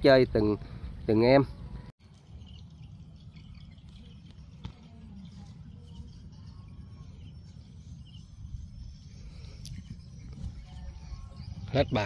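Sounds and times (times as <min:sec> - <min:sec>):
wind rumble on microphone: 0:00.0 - 0:12.0
small birds chirping: 0:00.7 - 0:12.0.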